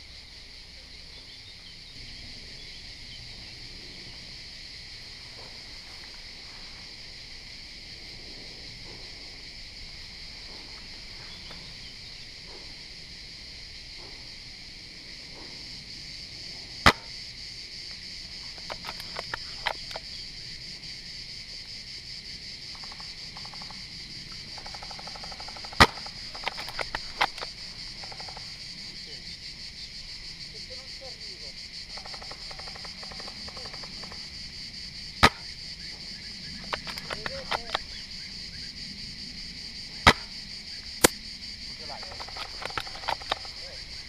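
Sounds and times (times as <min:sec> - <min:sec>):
insects chirring: 0:00.0 - 0:44.0
airsoft rifle shot: 0:16.8 - 0:17.1, 0:25.6 - 0:27.4, 0:35.2 - 0:35.5, 0:40.0 - 0:40.3
quiet clicks: 0:36.6 - 0:37.9, 0:41.9 - 0:43.6.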